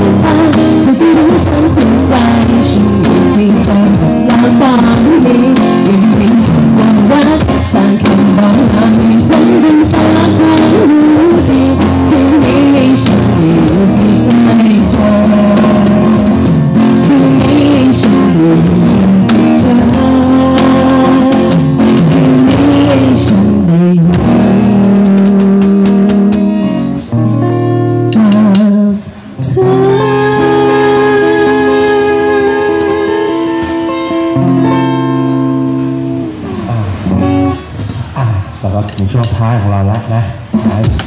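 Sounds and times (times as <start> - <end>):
loud music with drums: 0.0 - 28.7, 40.4 - 41.0.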